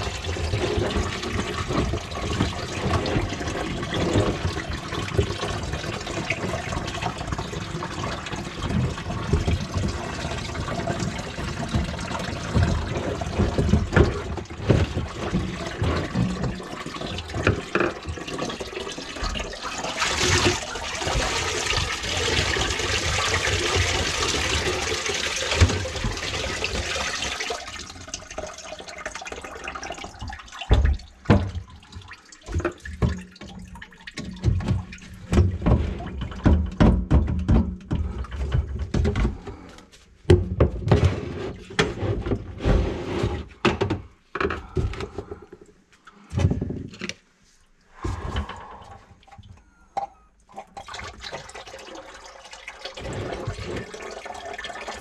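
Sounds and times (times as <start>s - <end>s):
plastic pipes and tools clunking: 0.0s - 27.2s, 30.0s - 47.3s, 48.0s - 51.5s
water pouring into a bucket: 0.0s - 36.6s, 50.5s - 55.0s.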